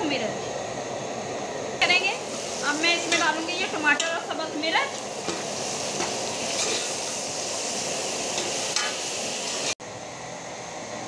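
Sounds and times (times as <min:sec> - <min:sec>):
vegetables sizzling in fat: 0:01.8 - 0:09.8.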